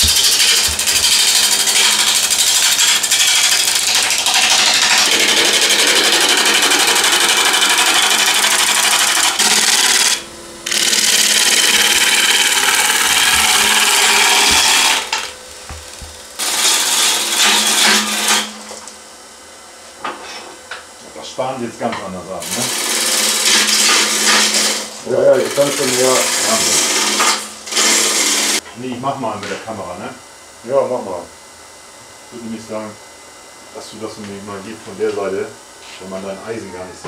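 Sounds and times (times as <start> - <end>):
lathe tool scraping wood: 0.0 - 15.3, 15.9 - 18.6, 22.5 - 28.6
lathe motor hum: 0.0 - 18.5.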